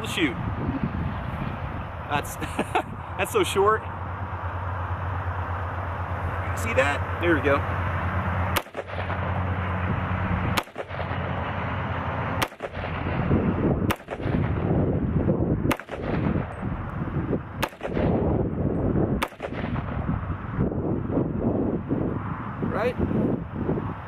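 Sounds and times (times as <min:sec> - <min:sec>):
rifle gunshots: 0:08.5 - 0:09.3, 0:10.5 - 0:11.3, 0:12.4 - 0:14.7, 0:15.7 - 0:16.6, 0:17.6 - 0:18.2, 0:19.2 - 0:20.0.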